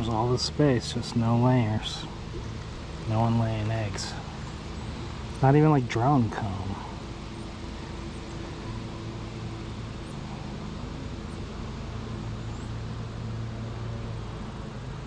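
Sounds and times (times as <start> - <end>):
honeybees buzzing: 0.0 - 15.0.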